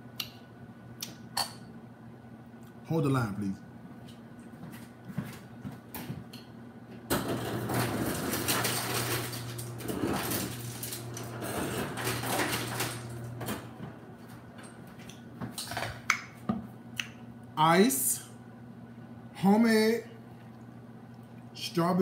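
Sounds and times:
ice dispenser motor hum: 7.1s - 14.8s.

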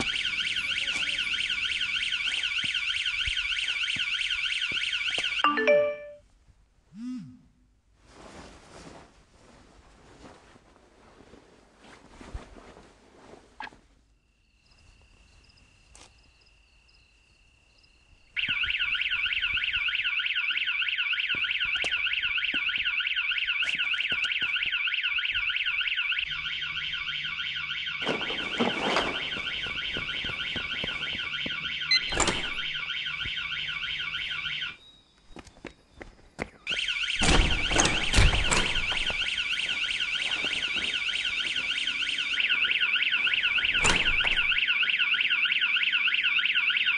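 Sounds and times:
alarm siren warbling: 0.0s - 6.1s, 18.4s - 34.8s, 36.7s - 46.9s.

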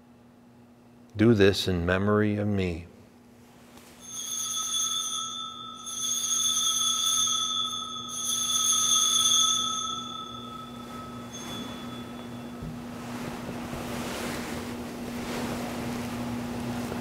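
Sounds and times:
altar bell ringing: 4.0s - 13.3s.

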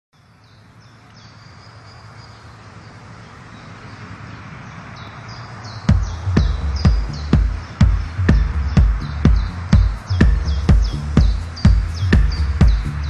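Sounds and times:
high falling chirps: 5.0s - 13.0s
loud heavy beat: 5.9s - 13.0s.

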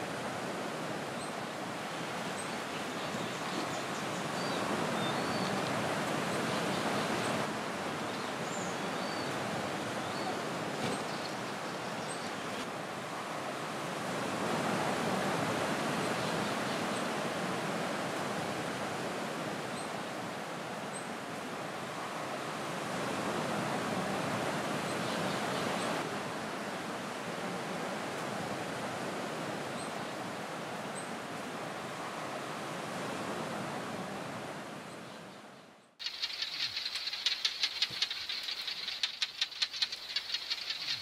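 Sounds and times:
sea surf rushing: 0.0s - 19.7s
high bird chirps: 36.0s - 41.0s.

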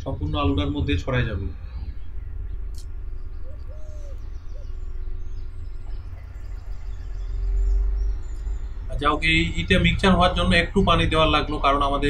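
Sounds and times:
steady low rumble: 0.0s - 12.0s
bird cooing: 3.3s - 8.1s.

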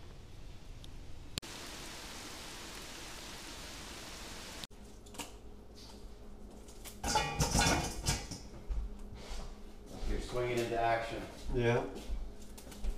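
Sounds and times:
steady rain falling: 1.3s - 4.7s
rustling and clatter: 5.8s - 9.0s
kitchen handling noises: 6.6s - 8.8s.

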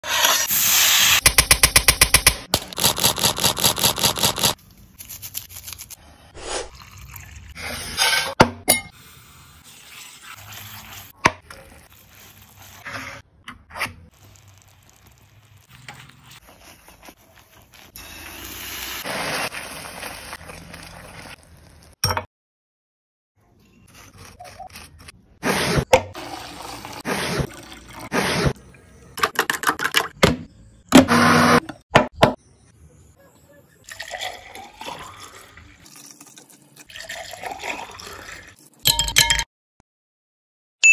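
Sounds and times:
liquid pouring and stirring: 6.6s - 8.2s, 33.9s - 38.8s.

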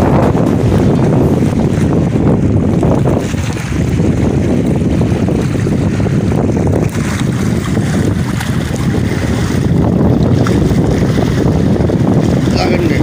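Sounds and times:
sea water washing against rocks: 0.0s - 13.0s
wind rumbling on microphone: 0.0s - 13.0s.

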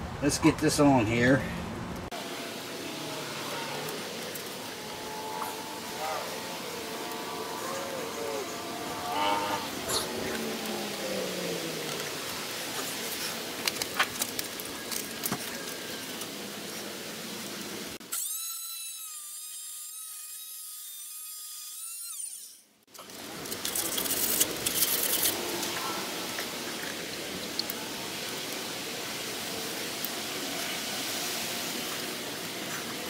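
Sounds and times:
crackly noise: 1.9s - 18.0s, 22.9s - 33.0s
power tool cutting pipe: 2.2s - 13.3s, 18.0s - 26.6s.

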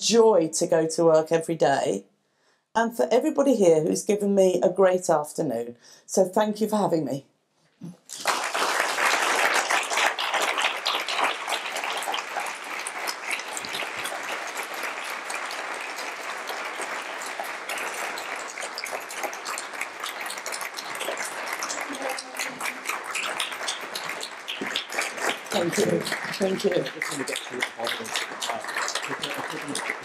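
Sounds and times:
audience applauding: 8.1s - 30.0s.

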